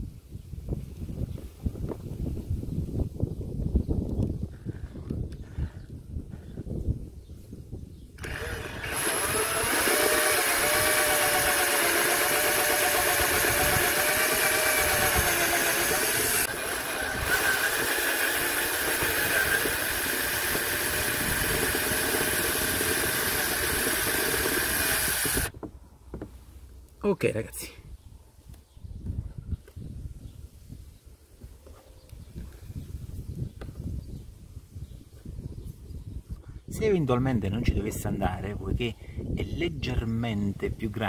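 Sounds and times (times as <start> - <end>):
cordless drill cutting plastic: 8.2 - 25.5.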